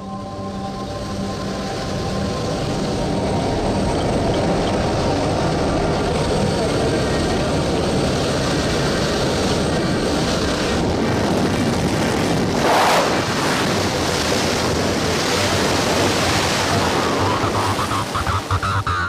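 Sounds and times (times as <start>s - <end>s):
aircraft engine drone: 0.0s - 19.0s
wind rushing: 10.0s - 18.9s.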